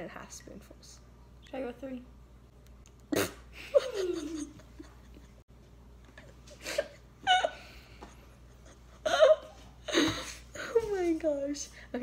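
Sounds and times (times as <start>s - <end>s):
girls laughing: 3.5s - 5.5s, 6.2s - 10.4s.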